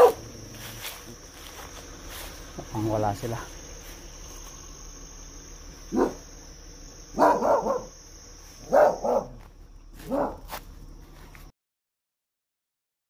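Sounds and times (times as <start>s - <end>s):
dog barking: 0.0s - 0.3s, 5.9s - 6.3s, 7.1s - 8.0s, 8.6s - 9.4s, 10.0s - 10.6s
high insect trill: 0.0s - 11.5s.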